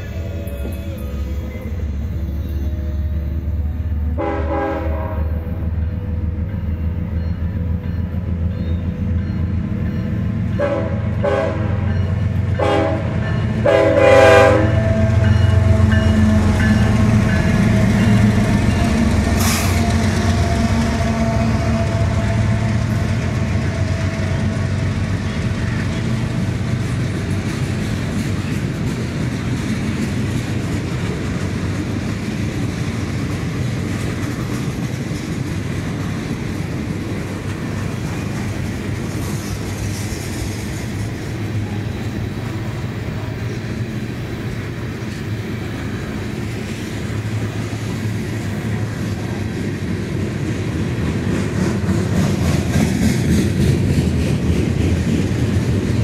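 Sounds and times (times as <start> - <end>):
diesel locomotive engines rumbling: 0.0 - 56.0
train air horn blasts: 3.3 - 5.6, 10.6 - 11.9, 12.6 - 23.1
freight cars clickety-clack: 5.6 - 56.0.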